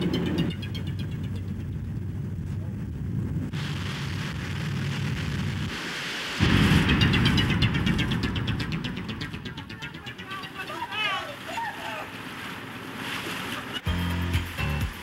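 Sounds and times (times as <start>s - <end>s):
low rumble: 1.2s - 5.8s, 6.4s - 10.8s
car splashing through floodwater: 11.0s - 13.8s.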